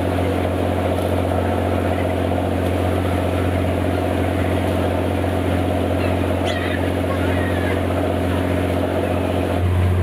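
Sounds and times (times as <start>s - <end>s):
boat diesel engine droning: 0.0s - 10.0s
churn of the wake: 0.0s - 10.0s
gull calls: 5.9s - 7.9s.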